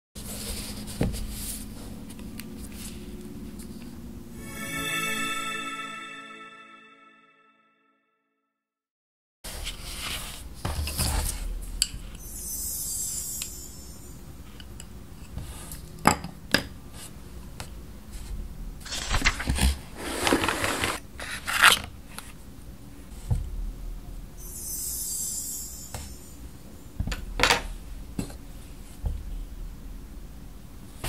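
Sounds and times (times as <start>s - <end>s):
paper rustling: 18.9s - 21.7s.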